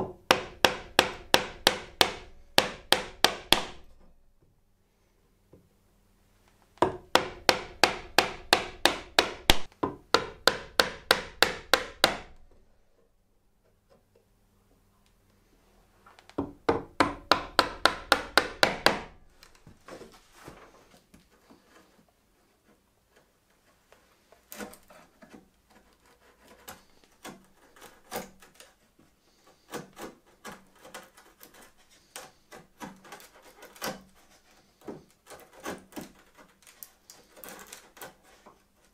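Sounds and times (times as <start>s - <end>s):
chisel scraping wood: 0.3s - 4.1s, 16.9s - 38.9s
chisel struck with blows: 6.8s - 12.4s.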